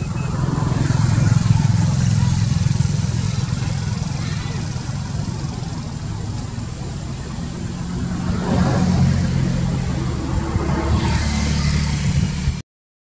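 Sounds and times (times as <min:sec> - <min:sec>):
vehicle engine running: 0:00.0 - 0:12.6.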